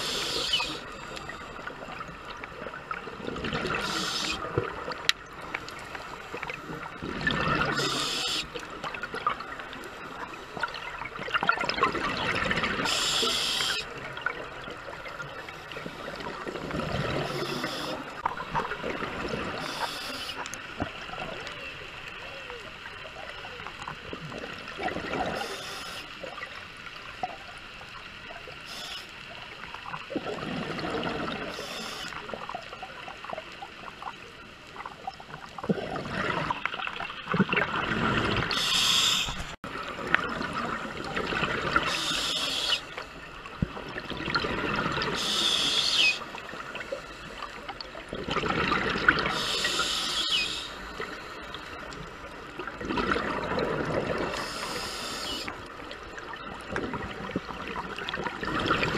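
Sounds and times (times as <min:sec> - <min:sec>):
regulator hiss on inhale: 0:00.0 - 0:01.4, 0:03.8 - 0:04.5, 0:07.8 - 0:08.6, 0:12.8 - 0:13.9, 0:17.2 - 0:18.2, 0:19.6 - 0:20.4, 0:25.3 - 0:26.2, 0:28.6 - 0:29.2, 0:31.5 - 0:32.3, 0:38.5 - 0:39.6, 0:41.8 - 0:43.0, 0:45.1 - 0:46.3, 0:49.3 - 0:51.3, 0:54.3 - 0:55.5
exhaled bubbles rushing: 0:06.8 - 0:07.9, 0:10.6 - 0:12.9, 0:30.0 - 0:31.5, 0:35.5 - 0:41.9, 0:43.5 - 0:45.2, 0:48.0 - 0:49.4, 0:52.6 - 0:54.4, 0:56.3 - 0:58.9.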